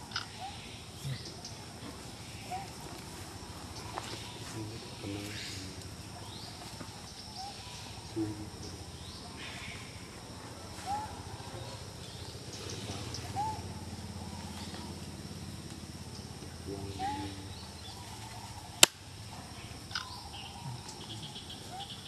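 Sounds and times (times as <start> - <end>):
low background hum: 0.0 - 22.0
faint high animal calls: 2.3 - 6.5, 10.7 - 11.8, 16.7 - 18.8.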